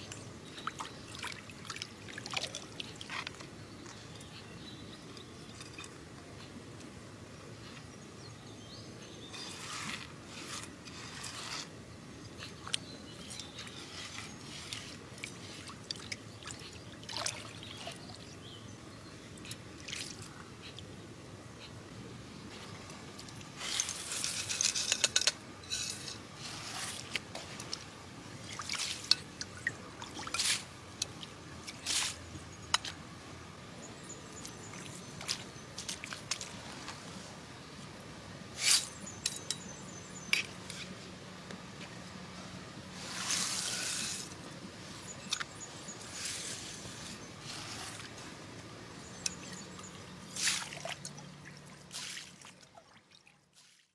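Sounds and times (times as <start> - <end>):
water sloshing and trickling: 0.0 - 4.4, 9.3 - 20.9, 22.5 - 33.1, 33.9 - 41.1, 41.8 - 53.9
water splashes: 14.0 - 18.3, 26.8 - 32.2, 49.4 - 53.9.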